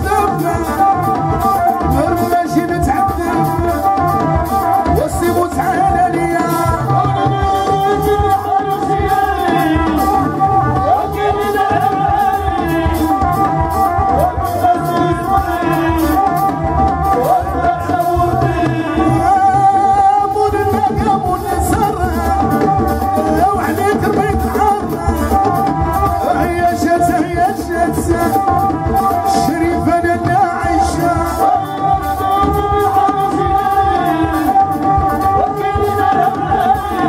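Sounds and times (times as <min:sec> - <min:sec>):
band with violin and keyboard: 0:00.0 - 0:37.0
man singing: 0:00.0 - 0:37.0
steady hand-drum beat: 0:00.0 - 0:37.0.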